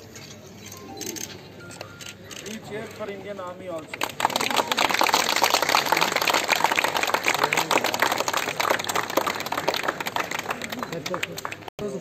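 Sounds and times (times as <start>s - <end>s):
crowd applauding: 3.9s - 12.0s.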